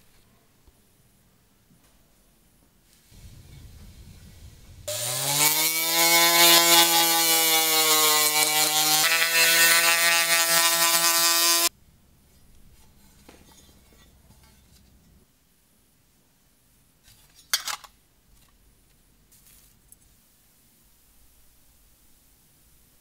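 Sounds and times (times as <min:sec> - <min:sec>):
electric rotary tool whining: 0:04.9 - 0:11.7.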